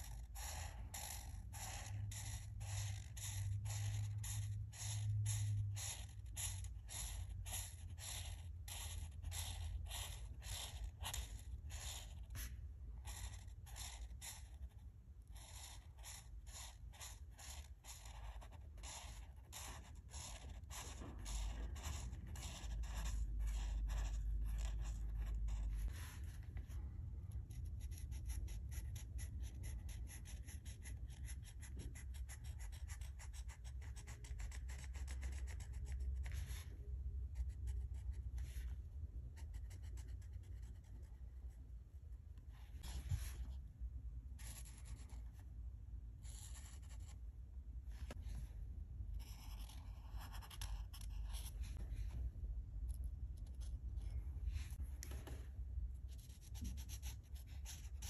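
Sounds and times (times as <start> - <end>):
marker tips scratching paper: 0.0 - 26.5, 49.2 - 51.8, 56.1 - 58.0.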